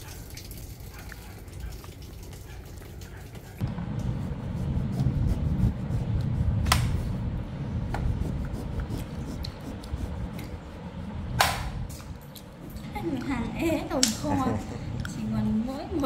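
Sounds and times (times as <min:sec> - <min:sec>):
steady low rumble: 0:03.6 - 0:16.0
knife scraping fruit peel: 0:08.0 - 0:10.6.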